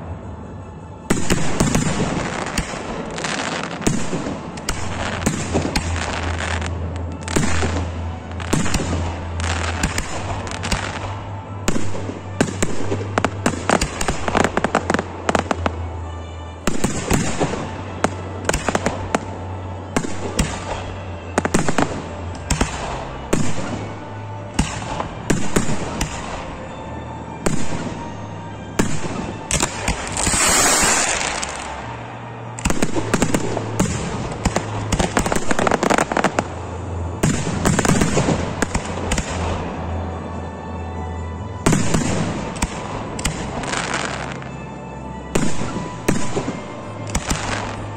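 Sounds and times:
fireworks bangs: 1.1s - 26.7s, 27.4s - 39.8s, 41.6s - 44.5s, 45.3s - 47.9s
firework crackling hiss: 29.6s - 31.8s.

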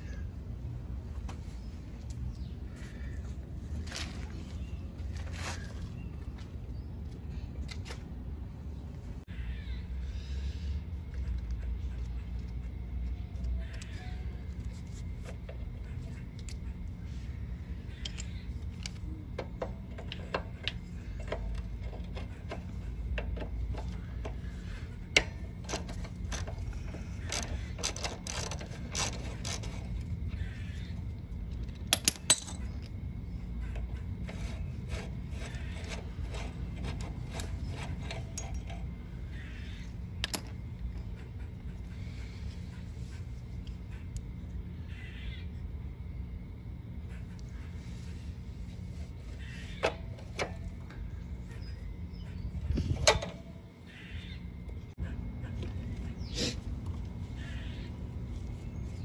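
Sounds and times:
metal wrench clicks and clinks: 31.5s - 33.0s.

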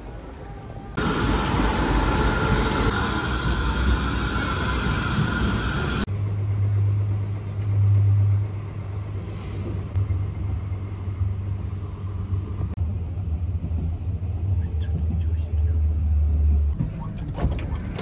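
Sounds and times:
street noise: 0.0s - 18.0s
tram passing with whine: 0.0s - 18.0s
hum and rumble inside vehicle: 6.0s - 18.0s.

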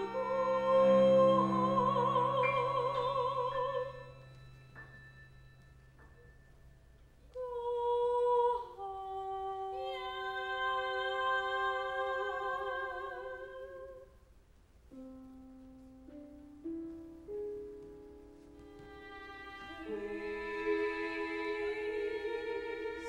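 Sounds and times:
woman singing opera: 0.0s - 4.4s, 7.3s - 14.2s, 18.6s - 23.0s
low sustained tones: 0.0s - 13.3s.

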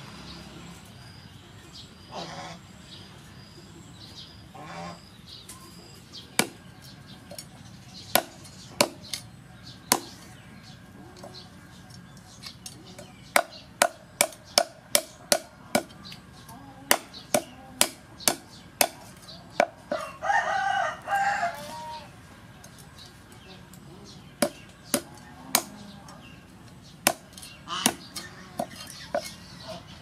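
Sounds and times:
cleaver chopping on wooden board: 16.9s - 19.7s.

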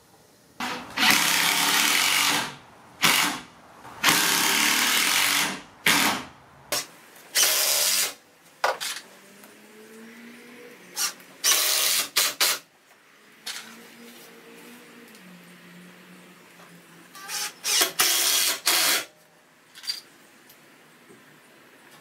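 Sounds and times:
cordless drill bursts: 0.6s - 8.2s, 11.0s - 12.6s, 17.2s - 19.1s.

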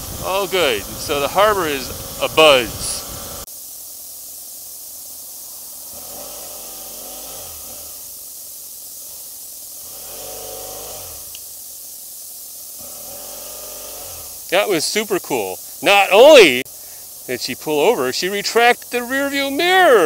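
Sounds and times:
wind hiss on camera: 0.0s - 20.0s
motorcycle engine revving: 5.9s - 8.2s, 9.0s - 11.4s, 12.8s - 14.5s.

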